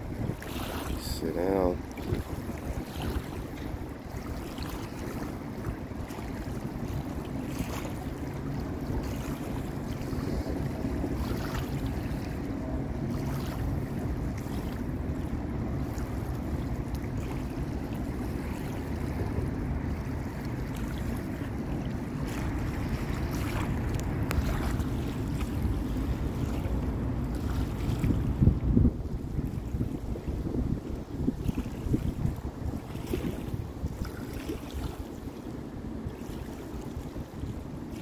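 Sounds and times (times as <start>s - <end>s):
wind on microphone: 0.0s - 38.0s
steady low rumble: 8.2s - 32.9s.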